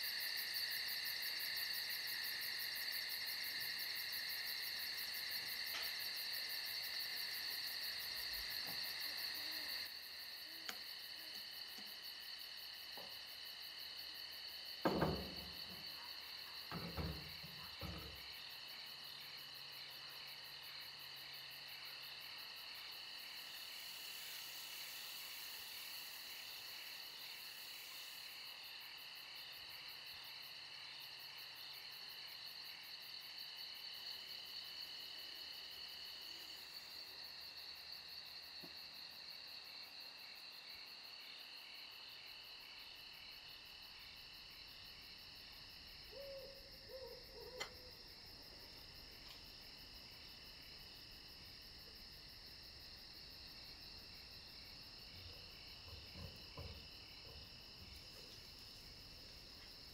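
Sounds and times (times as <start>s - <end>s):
insects chirring: 0.0s - 59.9s
soft knocks: 14.8s - 15.8s.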